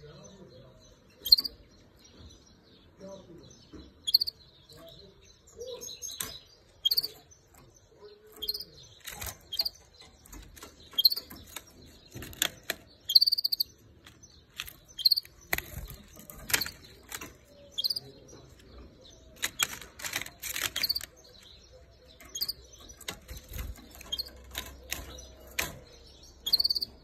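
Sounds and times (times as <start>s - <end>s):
canary high chirps: 1.2s - 1.9s, 3.9s - 27.0s
sharp clicks: 6.0s - 27.0s.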